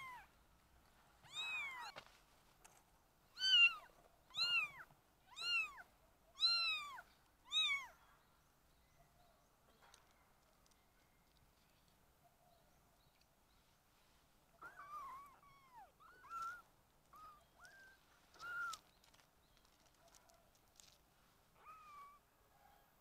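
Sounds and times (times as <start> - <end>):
kittens mewing: 14.6 - 18.9, 21.6 - 22.2.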